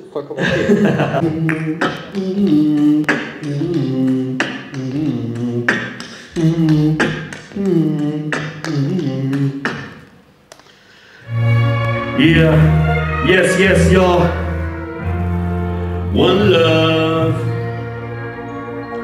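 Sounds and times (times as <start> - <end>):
hummed wavering vocal line: 1.1 - 10.0
man beatboxing: 1.1 - 10.8, 12.2 - 14.4
sharp mouth clicks beat: 1.4 - 10.9.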